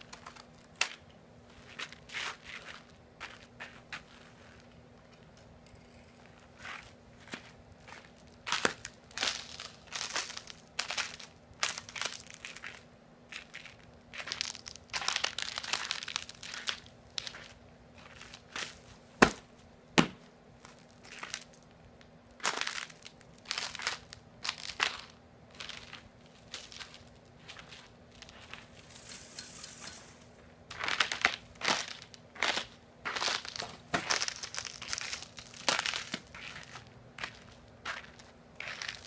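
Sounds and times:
ice crunching and crackling: 7.9 - 18.8, 22.4 - 39.0.

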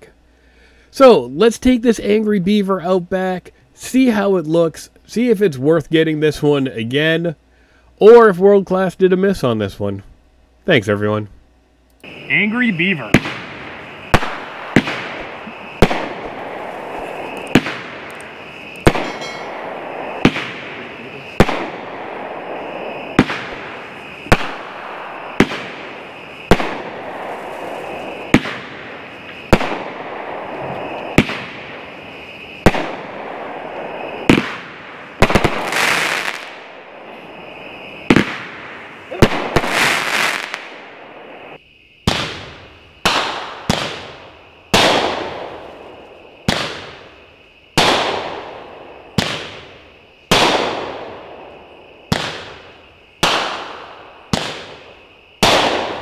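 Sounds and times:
firework shots banging: 12.0 - 41.4, 42.0 - 56.0
fizzing crackling firework tails: 12.1 - 56.0.

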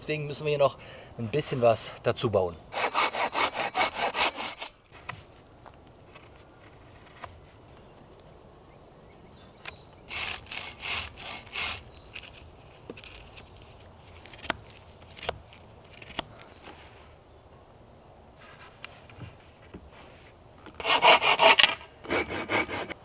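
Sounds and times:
knife rasping into wood: 2.8 - 4.7, 10.1 - 13.4, 20.8 - 23.0.

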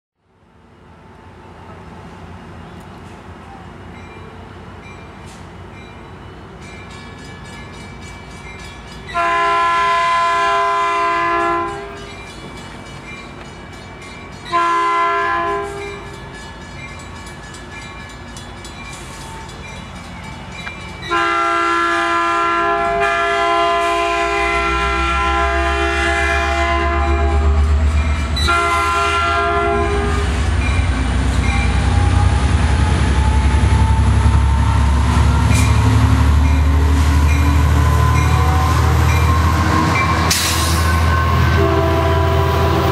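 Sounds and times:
rising train whine: 0.2 - 42.9
locomotive air horn blasts: 9.2 - 12.0, 14.5 - 16.0, 21.1 - 27.8, 28.4 - 30.6, 37.0 - 42.9.

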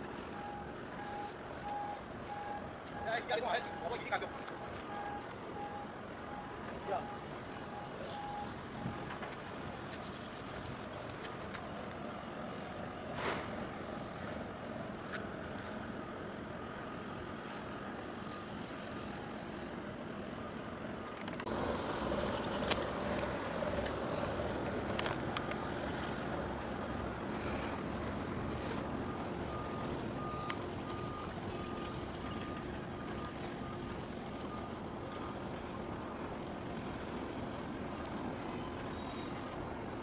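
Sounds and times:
distant engines: 0.0 - 40.0
electronic beep: 0.4 - 9.0
wind rumble: 21.3 - 34.3.

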